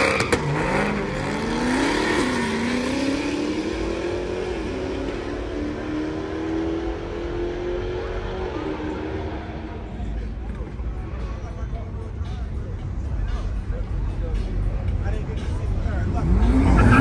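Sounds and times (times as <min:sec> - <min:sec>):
car engine accelerating hard: 0:00.0 - 0:10.0, 0:15.9 - 0:17.0.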